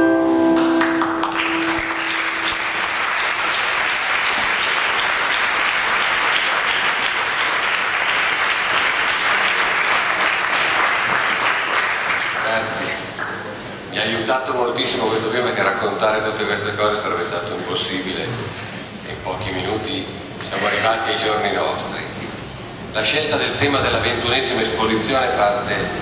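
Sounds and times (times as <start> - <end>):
film music held notes: 0.0 - 3.0
audience applauding: 0.6 - 13.6.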